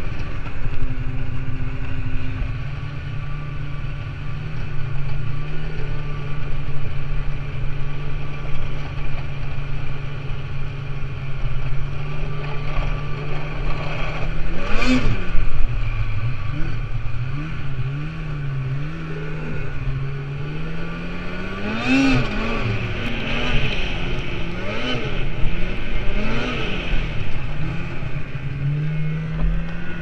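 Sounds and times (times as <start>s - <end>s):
snowmobile engine revving: 11.2s - 30.0s.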